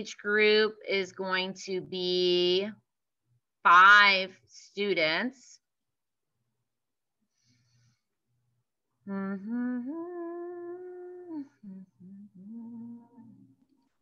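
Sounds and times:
woman humming: 9.0 - 13.7.

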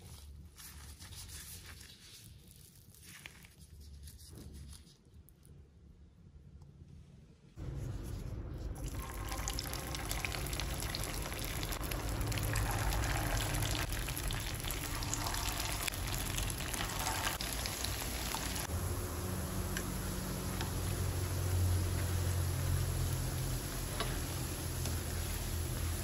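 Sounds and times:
deep-frying oil sizzling: 8.8 - 26.0.

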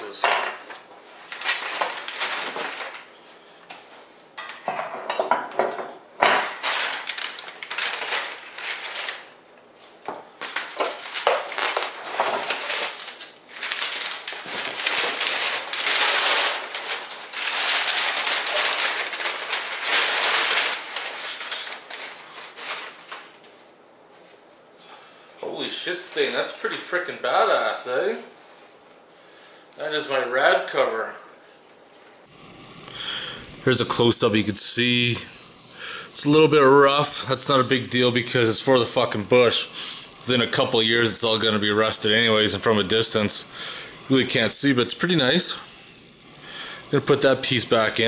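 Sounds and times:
cardboard and paper rustling: 0.7 - 4.0, 6.5 - 24.5.

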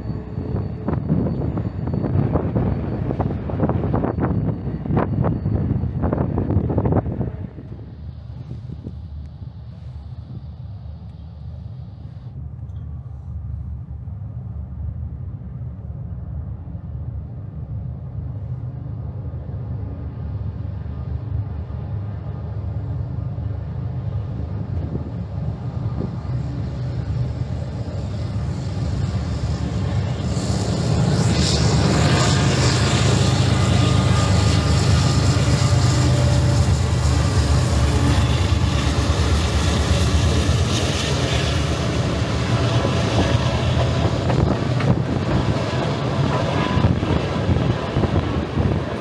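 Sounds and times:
freight train rumbling: 0.0 - 49.0
hiss of wheels on rail: 7.6 - 12.4.

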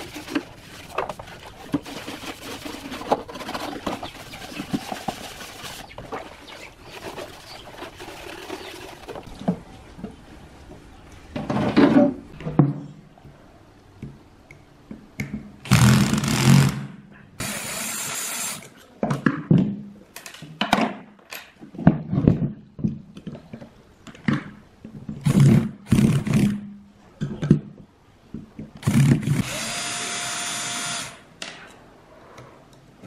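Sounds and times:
sponge scrubbing plastic in water: 0.0 - 9.3
cordless drill running: 29.4 - 31.2.

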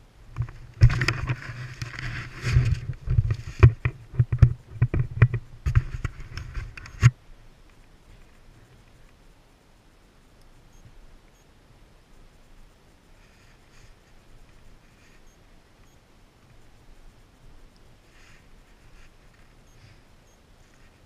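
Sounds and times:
wind noise: 0.0 - 21.0
camera jostling knocks and thumps: 0.4 - 7.2.

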